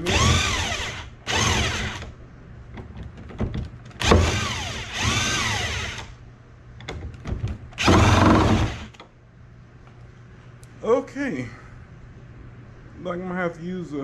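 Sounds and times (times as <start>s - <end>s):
power tool motor spinning: 0.1s - 2.0s, 4.0s - 6.1s, 7.8s - 8.9s.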